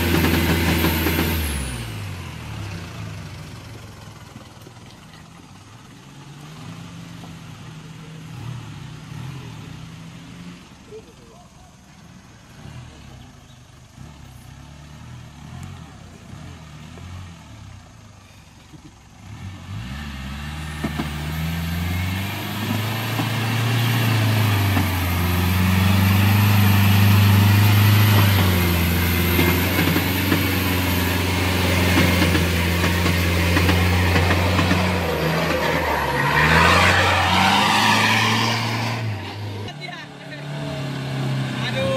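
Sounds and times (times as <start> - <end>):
truck engine revving: 0.0 - 4.4, 12.4 - 18.0, 18.8 - 41.9.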